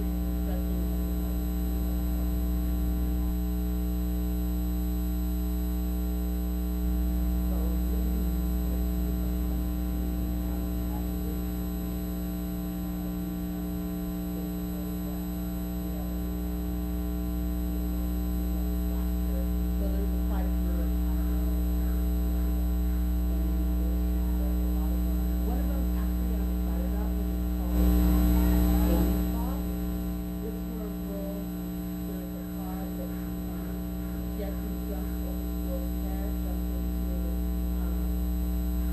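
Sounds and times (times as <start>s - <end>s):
electrical mains hum: 0.0s - 38.9s
faint indistinct voices: 18.5s - 38.9s.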